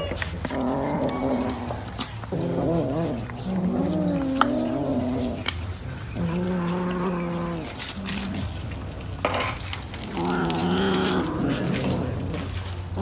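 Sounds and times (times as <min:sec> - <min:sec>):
cats yowling: 0:00.0 - 0:05.4
wet chewing: 0:00.0 - 0:13.0.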